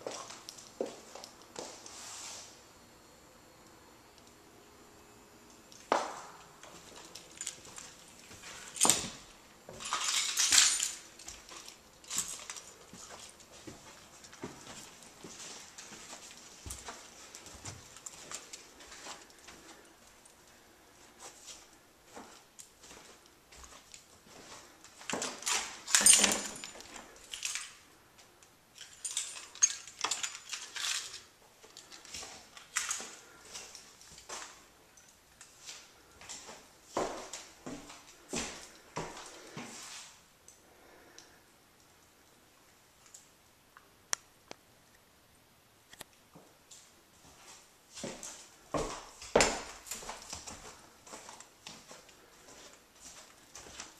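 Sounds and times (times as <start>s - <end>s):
handling clicks clinks and rustles: 6.6s - 20.3s, 24.8s - 36.4s.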